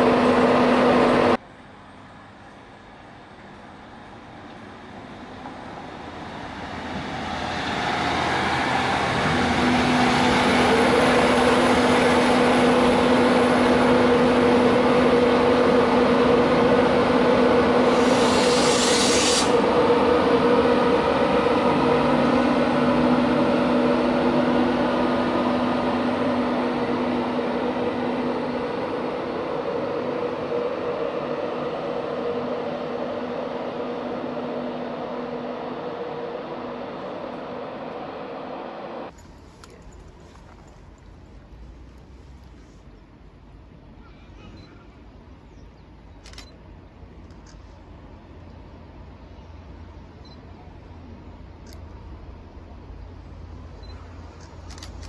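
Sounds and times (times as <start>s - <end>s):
electric locomotive hum and whine: 0.0s - 55.0s
short hiss: 17.9s - 19.6s.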